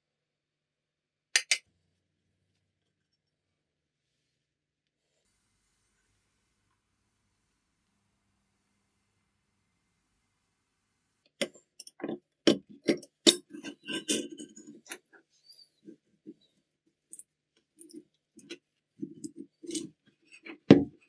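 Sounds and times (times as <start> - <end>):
metal tools clicking and clinking: 12.9 - 15.0.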